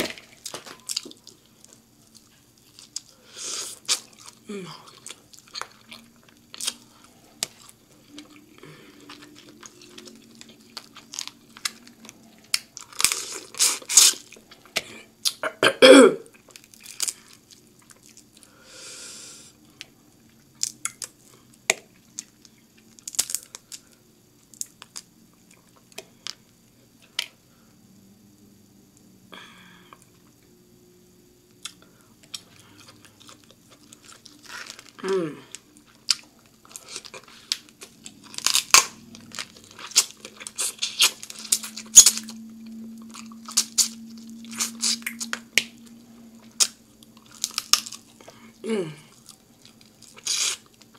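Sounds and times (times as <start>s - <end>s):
wet chewing and slurping: 35.9s - 42.3s, 43.0s - 45.7s, 49.1s - 50.9s.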